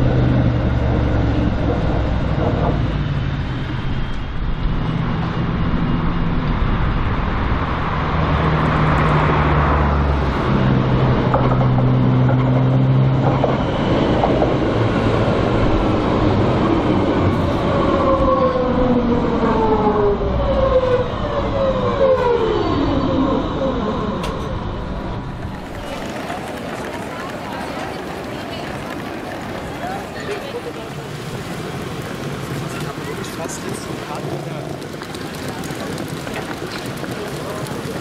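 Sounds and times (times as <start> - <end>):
tram braking: 0.0 - 38.0
tram electric drive humming: 0.0 - 38.0.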